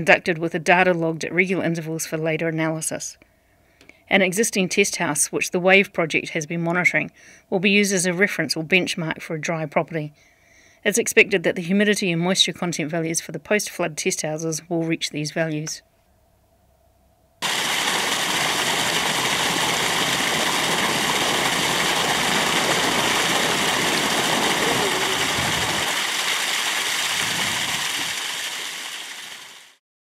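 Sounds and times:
rushing water: 17.4s - 29.8s.

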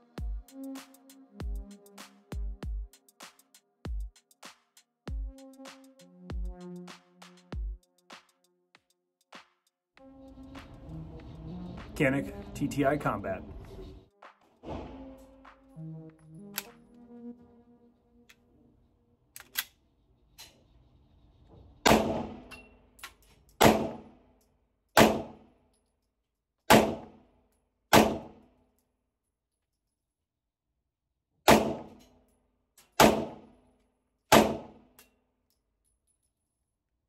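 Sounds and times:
pistol shots: 21.8s - 22.5s, 23.6s - 24.1s, 25.0s - 25.4s, 26.7s - 27.2s, 27.9s - 28.4s, 31.5s - 32.0s, 33.0s - 33.5s, 34.3s - 34.8s.

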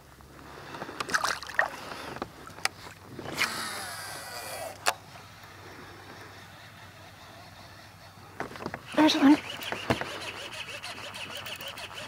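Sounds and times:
water splashing: 1.1s - 1.8s.

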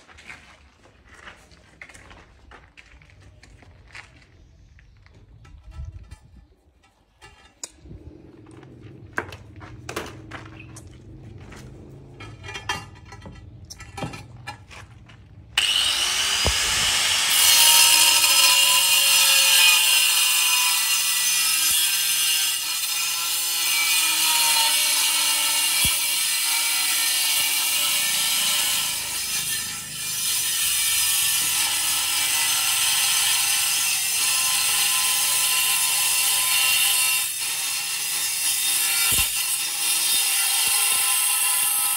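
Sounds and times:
knocks and clatter: 8.5s - 15.3s
angle grinder cutting tile: 15.6s - 41.9s.

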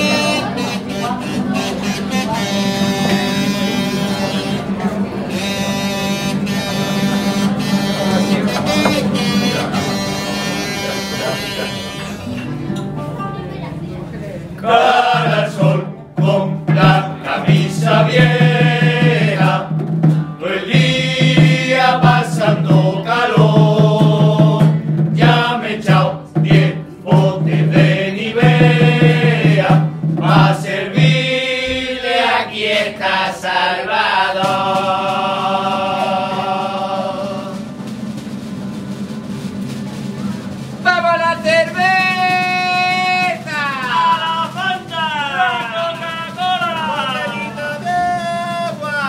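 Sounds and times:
male choir singing: 6.2s - 12.2s, 14.6s - 19.8s, 20.4s - 37.8s, 40.9s - 49.0s.

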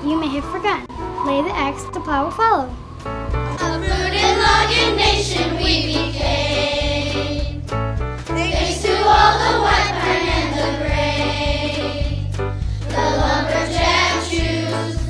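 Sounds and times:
instrumental accompaniment: 0.0s - 15.0s
children singing: 3.5s - 7.6s, 8.4s - 15.0s.

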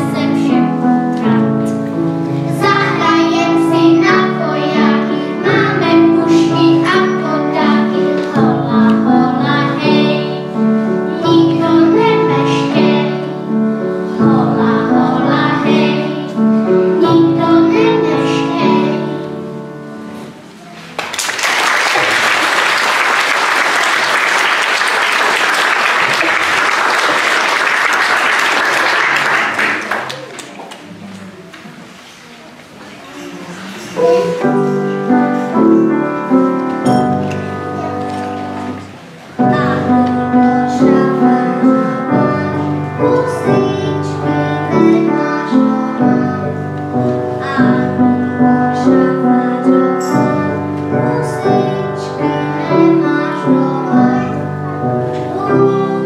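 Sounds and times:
children singing: 2.3s - 20.2s, 33.1s - 56.0s
audience applauding: 21.0s - 30.8s
instrumental accompaniment: 33.9s - 56.0s.

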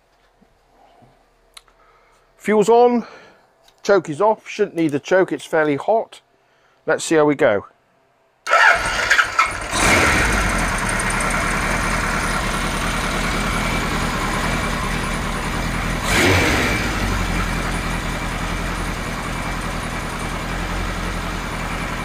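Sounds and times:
engine revving: 8.5s - 22.0s
motorcycle engine starting and idling: 8.5s - 22.0s.

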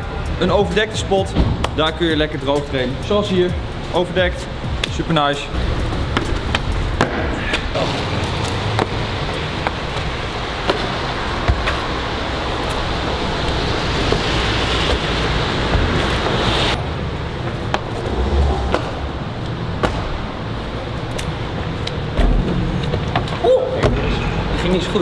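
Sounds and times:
road traffic hiss: 0.0s - 25.0s
shoes tapping on paving: 8.3s - 16.7s.

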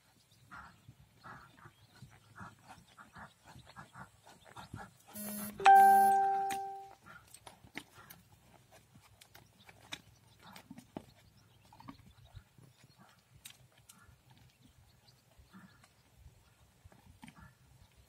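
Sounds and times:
short buzz: 5.2s - 6.8s
bell-like chime: 5.6s - 6.9s
horse hooves on sand: 6.7s - 18.0s.

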